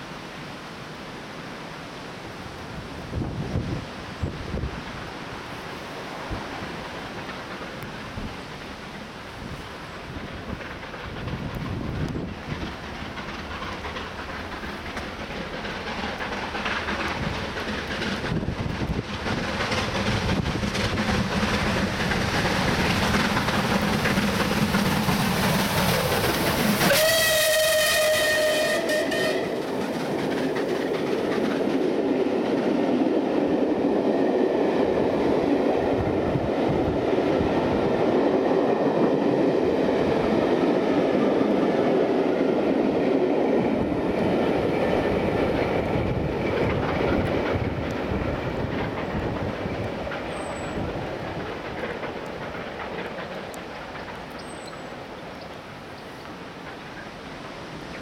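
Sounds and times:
steam locomotive passing: 0.0 - 58.0
wheels clattering on rails: 6.4 - 58.0
steam whistle blast: 26.8 - 29.6.

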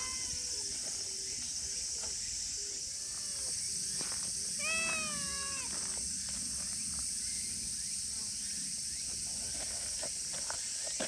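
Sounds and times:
steady high hiss: 0.0 - 11.0
cat meowing: 4.6 - 5.7.

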